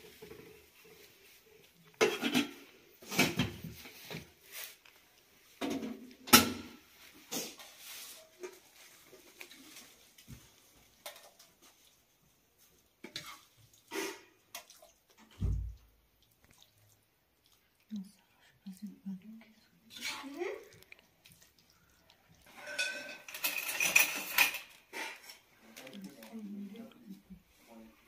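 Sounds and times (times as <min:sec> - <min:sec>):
cooking pots clanking: 0:02.0 - 0:03.7, 0:22.5 - 0:25.5
metal spoon scraping a pot: 0:19.9 - 0:20.4, 0:22.4 - 0:25.5.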